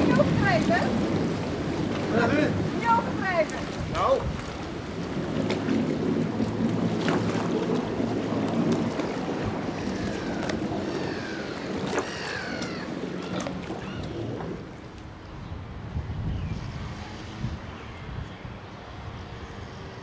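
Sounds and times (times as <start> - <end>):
boat engine idling: 0.0 - 15.2.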